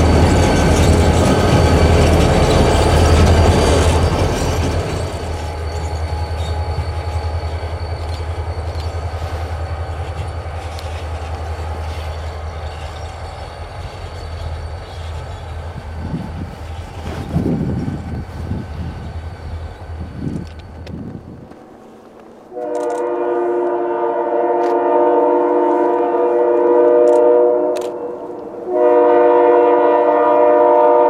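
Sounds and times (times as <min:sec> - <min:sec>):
high-pitched wheel squeal: 0:00.0 - 0:19.8
diesel locomotive engines droning: 0:00.0 - 0:31.0.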